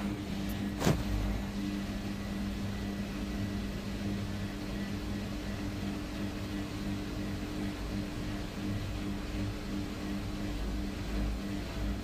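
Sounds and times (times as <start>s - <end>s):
washing machine spin cycle: 0.0s - 12.0s.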